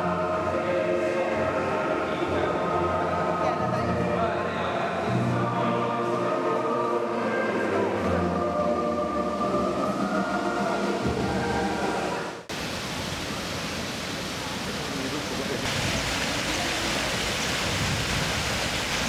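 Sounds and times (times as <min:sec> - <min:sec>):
background music with held tones: 0:00.0 - 0:12.4
small waterfall rushing: 0:09.8 - 0:19.0.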